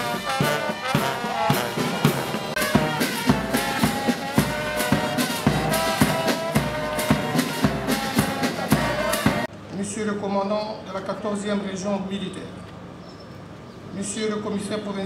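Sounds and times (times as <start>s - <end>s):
marching band brass: 0.0s - 9.5s
steady drum beat: 0.0s - 9.5s.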